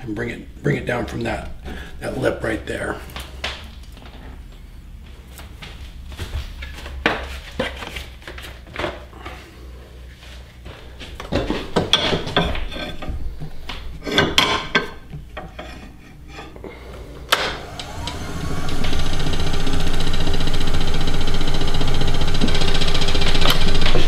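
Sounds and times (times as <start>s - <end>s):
lathe motor whine: 17.3s - 24.0s.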